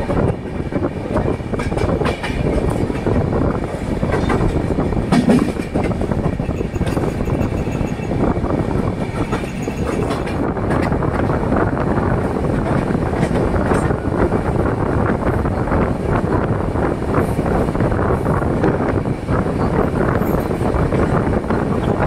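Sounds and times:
train rumbling on rails: 0:00.0 - 0:22.0
wheels clattering over rail joints: 0:00.2 - 0:11.5.

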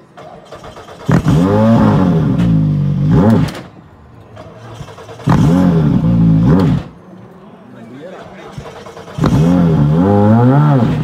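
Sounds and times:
car engine revving: 0:00.5 - 0:03.7, 0:04.6 - 0:07.0, 0:08.5 - 0:11.0.

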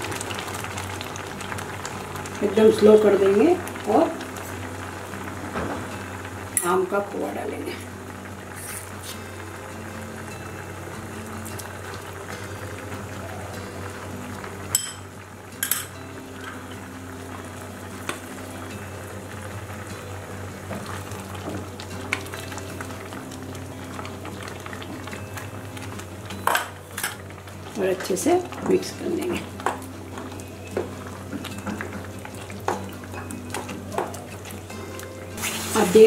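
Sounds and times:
syrup bubbling in a pan: 0:00.0 - 0:06.5, 0:07.8 - 0:28.6
spoon tapping a pan: 0:14.7 - 0:16.6, 0:32.6 - 0:34.2.

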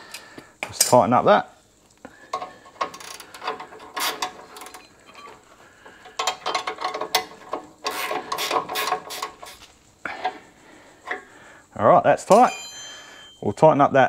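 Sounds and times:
hand ratchet clicking: 0:02.3 - 0:09.7.

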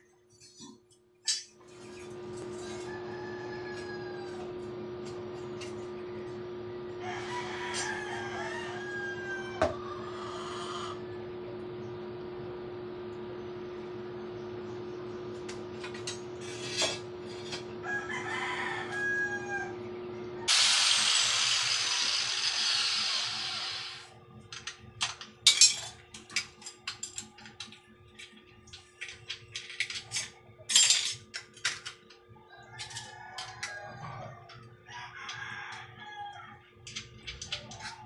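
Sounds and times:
electrical hum: 0:00.0 - 0:38.0
rooster crowing: 0:02.5 - 0:04.7, 0:06.7 - 0:11.3, 0:17.8 - 0:20.5, 0:32.4 - 0:37.0
loud harsh noise: 0:20.5 - 0:24.1
metal tools clinking: 0:24.6 - 0:27.3, 0:29.0 - 0:31.7.

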